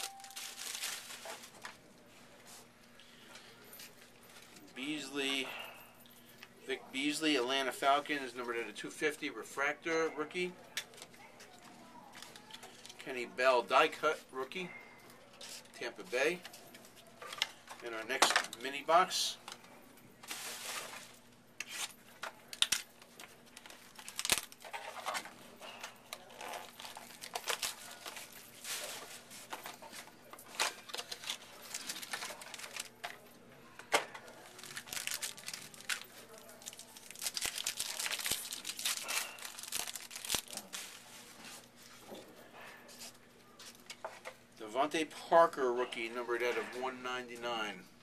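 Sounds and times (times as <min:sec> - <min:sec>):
card wrappers tearing and crinkling: 0:00.0 - 0:01.8, 0:21.6 - 0:22.8, 0:23.6 - 0:25.3, 0:26.2 - 0:29.0, 0:30.5 - 0:33.0, 0:34.3 - 0:41.1.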